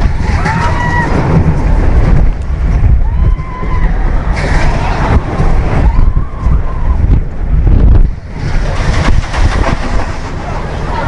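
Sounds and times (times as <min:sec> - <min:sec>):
roller coaster rumbling: 0:00.0 - 0:11.0
riders screaming: 0:00.2 - 0:01.5, 0:03.0 - 0:07.2.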